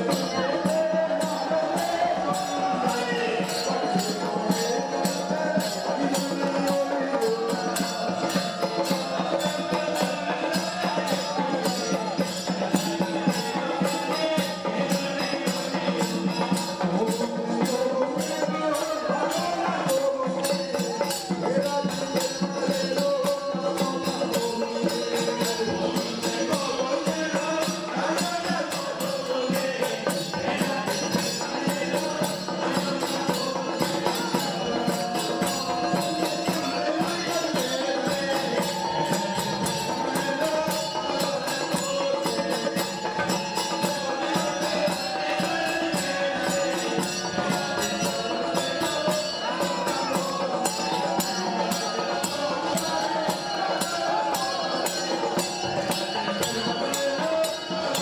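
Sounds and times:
group of voices chanting: 0.0 - 22.5, 25.0 - 58.0
frame drums beaten rapidly: 0.0 - 58.0.

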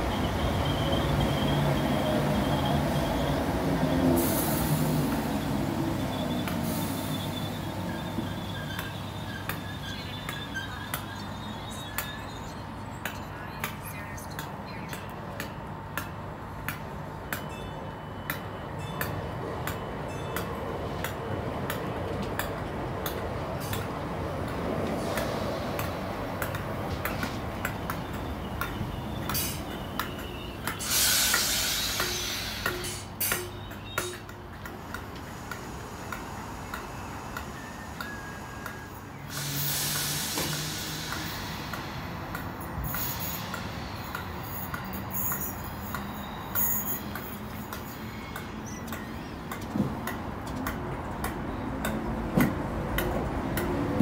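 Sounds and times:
train traction hum: 0.0 - 54.0
compressed-air hiss: 30.8 - 33.0, 39.2 - 44.6.

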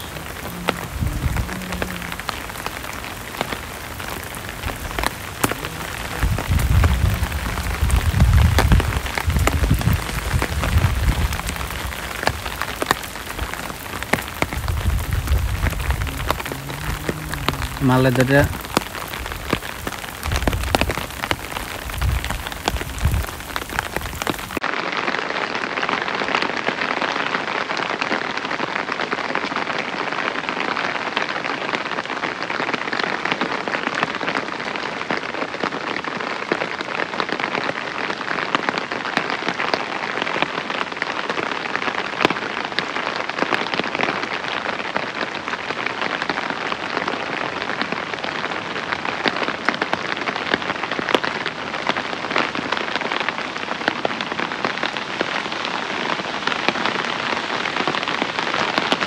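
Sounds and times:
wind buffeting microphone: 0.0 - 24.6
steady rain falling: 0.0 - 59.0.

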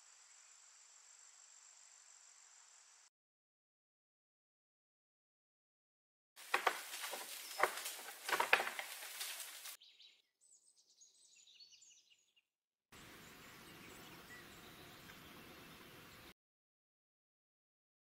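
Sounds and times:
steady outdoor hiss: 0.0 - 3.1, 13.0 - 16.3
rustling in dry leaves: 6.4 - 9.8
small birds chirping: 6.4 - 16.3.

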